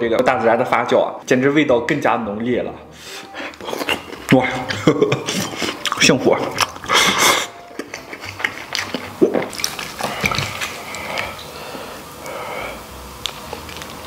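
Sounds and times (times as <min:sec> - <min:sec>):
chewing and lip-smacking: 0:03.5 - 0:11.6, 0:13.2 - 0:14.0.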